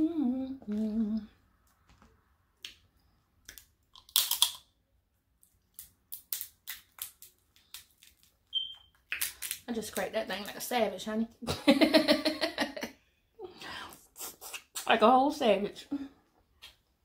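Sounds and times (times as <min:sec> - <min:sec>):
crab shell cracking: 0:03.4 - 0:04.7, 0:05.4 - 0:08.3, 0:09.1 - 0:09.7.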